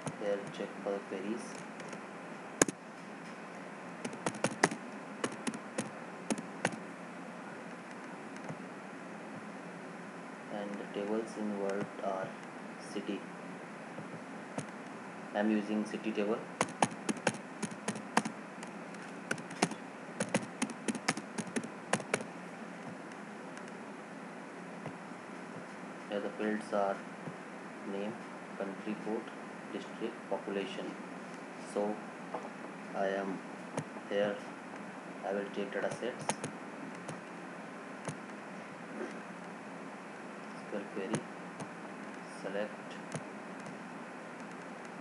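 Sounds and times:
keyboard key clicks: 4.0s - 6.8s, 16.6s - 18.3s
keyboard typing: 4.0s - 6.8s, 16.6s - 22.3s, 35.8s - 37.2s.

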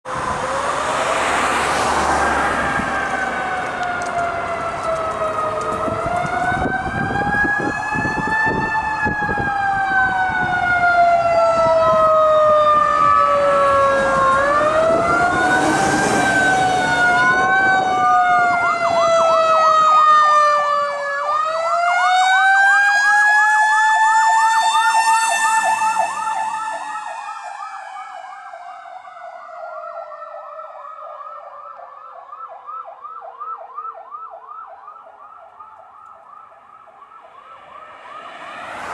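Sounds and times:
traffic noise: 0.0s - 38.9s
truck engine: 0.1s - 7.2s, 12.7s - 19.8s, 37.1s - 38.9s
fast siren yelp: 0.1s - 38.9s
sirens wailing: 0.1s - 38.9s.

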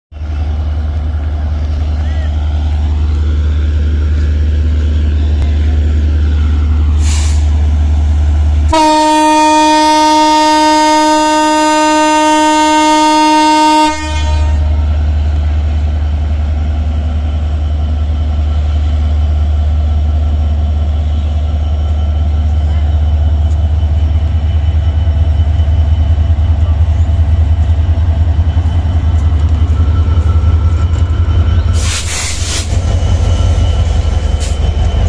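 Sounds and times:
diesel locomotive rumbling: 0.1s - 35.0s
train horn blast: 8.7s - 14.8s.

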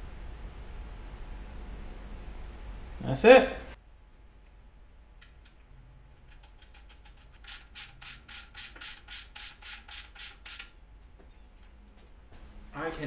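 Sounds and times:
hand ratchet clicking: 6.2s - 10.7s.

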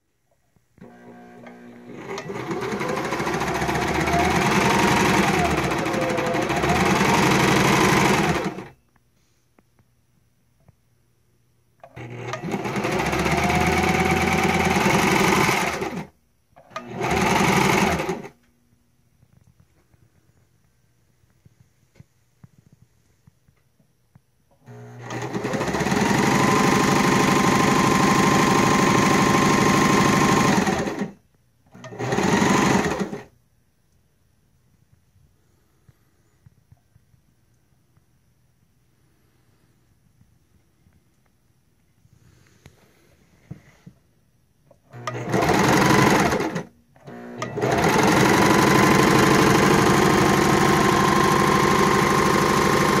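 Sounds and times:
sewing machine clattering: 1.9s - 8.7s, 12.0s - 16.1s, 25.0s - 31.2s, 31.8s - 33.3s, 44.9s - 53.0s.

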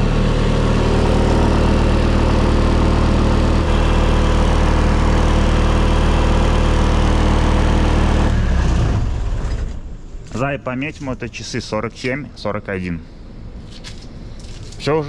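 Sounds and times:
diesel engine running loudly: 0.0s - 11.1s.

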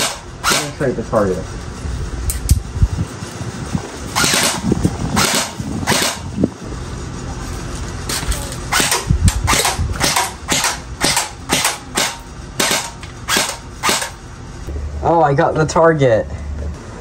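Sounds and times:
airsoft gun shots: 0.0s - 0.8s, 4.2s - 6.3s, 8.7s - 14.2s.

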